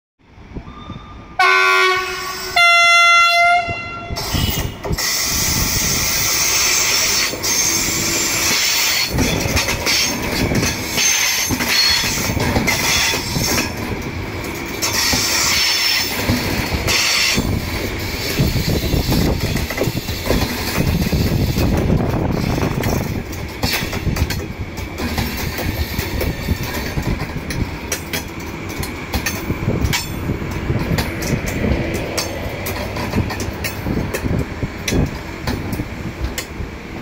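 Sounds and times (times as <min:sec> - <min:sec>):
train horn blasts: 0:00.7 - 0:04.8
train wheels clattering on track: 0:04.1 - 0:37.0.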